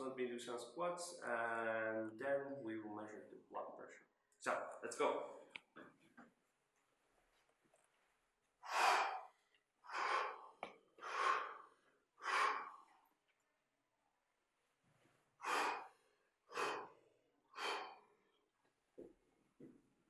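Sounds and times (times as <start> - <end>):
man exhaling sharply: 8.7 - 9.3, 17.6 - 18.1.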